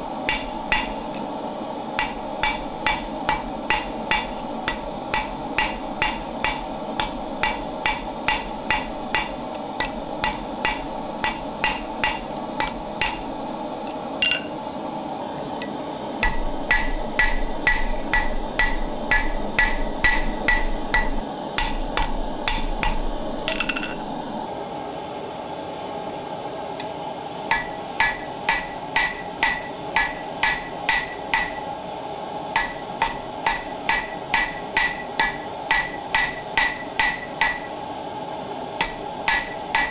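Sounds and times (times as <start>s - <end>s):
gas forge roaring: 0.0s - 39.9s
hammer striking metal on anvil: 0.2s - 1.2s, 2.0s - 13.4s, 14.2s - 14.6s, 15.6s - 24.1s, 27.5s - 31.7s, 32.6s - 37.8s, 38.8s - 39.9s
anvil ringing: 2.0s - 13.4s, 14.2s - 14.6s, 16.2s - 24.1s, 27.5s - 31.7s, 32.6s - 37.8s.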